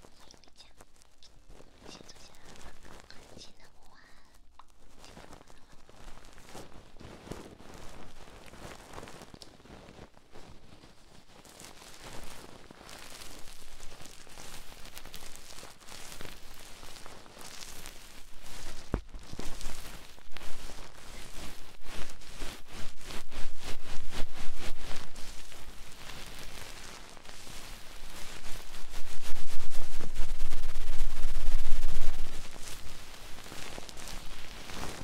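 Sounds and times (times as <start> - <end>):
scratching and tapping on microphone: 0.0 - 35.0
low rubbing rumble: 18.4 - 35.0.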